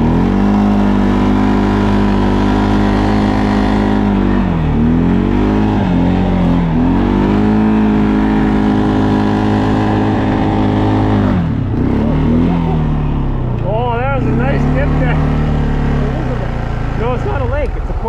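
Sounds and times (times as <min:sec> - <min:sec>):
atv engine running: 0:00.0 - 0:18.0.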